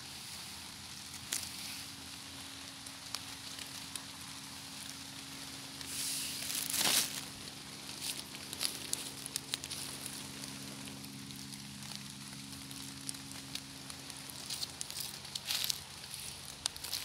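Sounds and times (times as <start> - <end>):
dry leaves rustling and crackling: 0.0 - 17.0.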